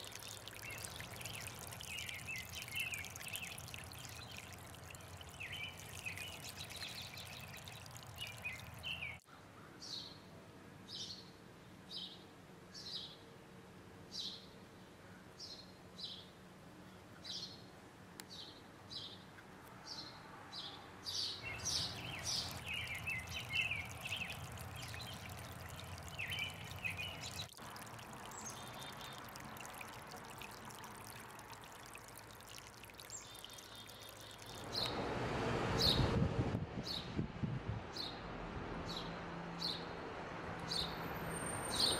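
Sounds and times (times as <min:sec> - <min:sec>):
sparrows chirping: 0:00.0 - 0:09.2, 0:20.6 - 0:31.2, 0:32.5 - 0:34.9
water trickling over rocks: 0:00.0 - 0:09.2, 0:21.4 - 0:35.0.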